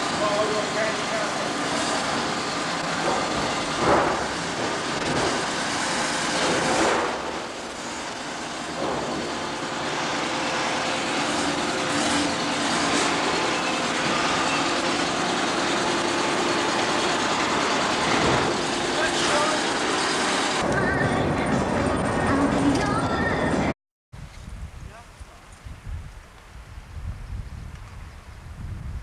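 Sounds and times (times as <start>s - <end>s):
forklift engine humming: 0.0s - 23.7s.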